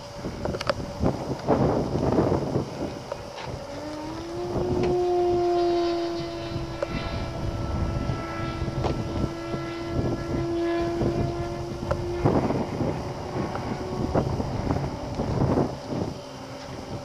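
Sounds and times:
model plane motor droning: 0.0 - 17.0
wind buffeting microphone: 0.0 - 17.0.

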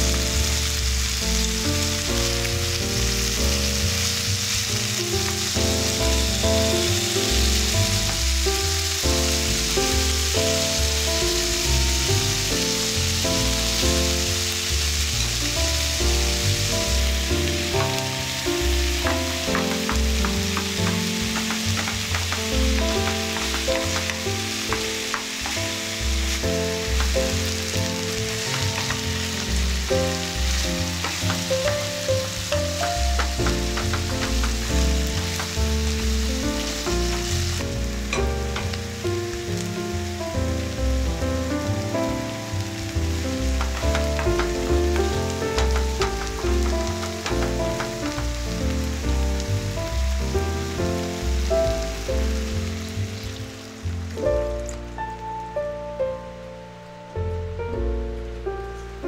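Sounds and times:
chicken and onion sizzling in oil: 0.0 - 55.8
background music: 0.0 - 59.0
wooden spatula scraping pan: 19.0 - 38.8, 43.5 - 48.4.

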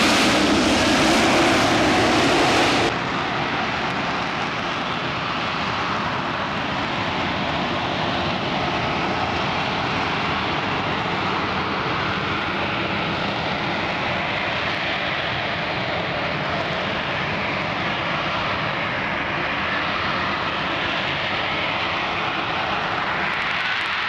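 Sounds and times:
loud jet noise of hovering aircraft: 0.0 - 24.0.

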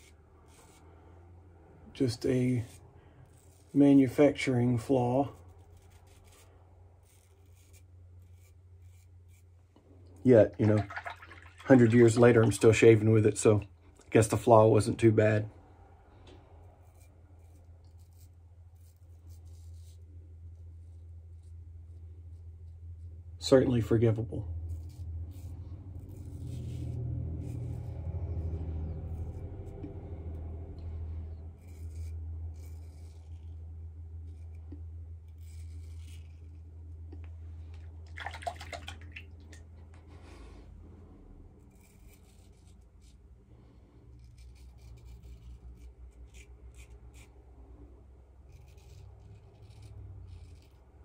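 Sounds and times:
razor scraping stubble: 0.0 - 9.7, 16.2 - 37.9, 41.4 - 43.4, 44.0 - 47.5, 48.4 - 51.0
low hum: 24.4 - 51.0.

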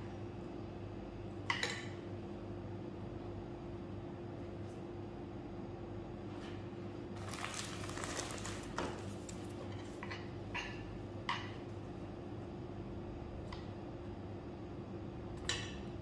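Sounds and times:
steady low hum: 0.0 - 16.0
plastic gloves rustling: 7.2 - 10.0.

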